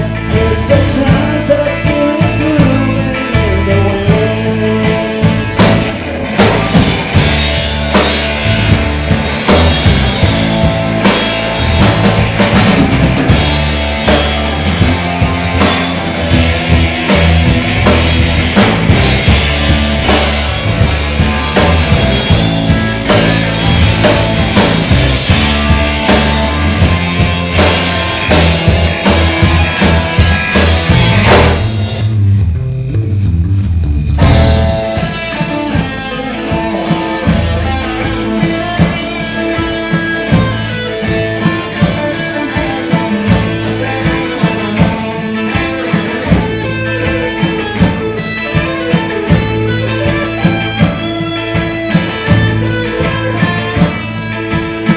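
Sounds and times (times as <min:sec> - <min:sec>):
bass guitar: 0:00.0 - 0:54.9
drum kit: 0:00.0 - 0:54.9
electric guitars: 0:00.0 - 0:54.9.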